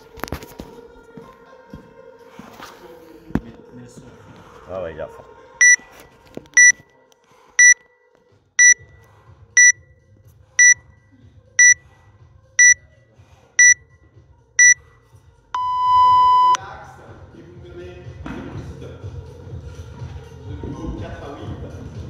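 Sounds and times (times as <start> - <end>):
short high timer beeps: 7.6 - 7.8, 8.6 - 8.8, 9.6 - 9.8, 13.6 - 13.8, 15.6 - 16.6.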